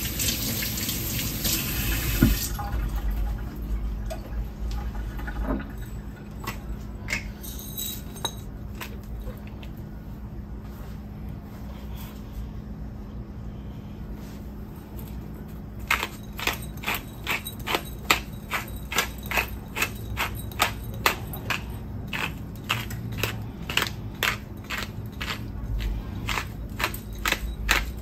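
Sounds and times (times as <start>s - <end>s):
pepper mill grinding: 15.8s - 28.0s.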